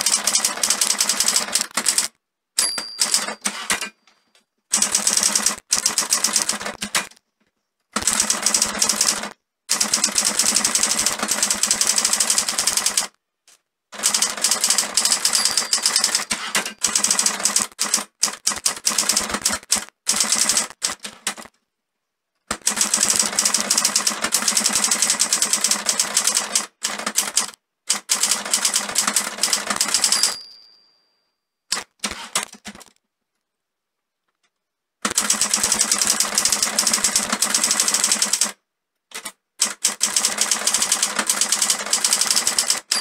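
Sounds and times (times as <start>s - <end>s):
typewriter margin bell: 2.6s - 4.0s, 14.0s - 18.0s, 28.4s - 31.2s, 40.1s - 43.0s
typewriter keys clacking: 2.7s - 4.0s, 14.0s - 21.5s, 22.5s - 30.4s.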